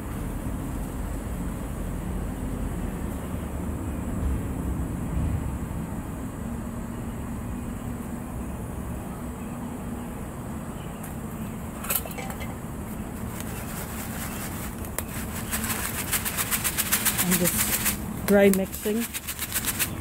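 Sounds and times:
foil pouch crinkling: 13.0s - 20.0s.

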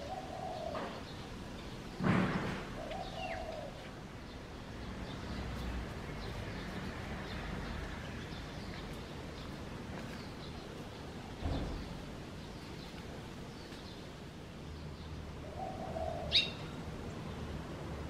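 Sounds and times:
dove cooing: 0.0s - 1.1s, 2.7s - 3.9s, 15.4s - 16.7s
thump: 2.0s - 2.7s, 11.4s - 11.9s.

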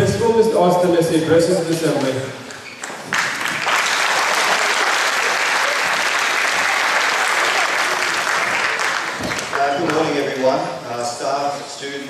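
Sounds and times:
audience applauding: 2.6s - 10.5s.

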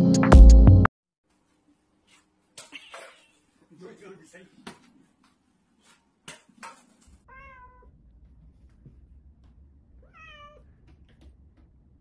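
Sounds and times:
cat meowing: 7.2s - 8.0s, 10.0s - 10.8s.

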